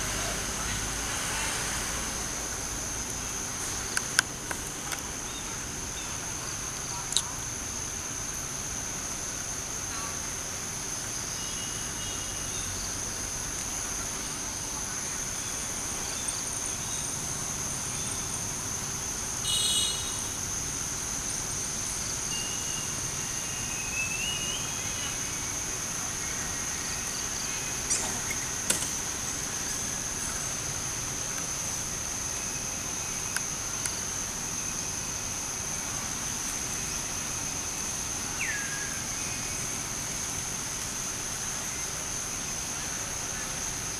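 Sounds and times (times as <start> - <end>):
insect drone: 0.0 - 43.9.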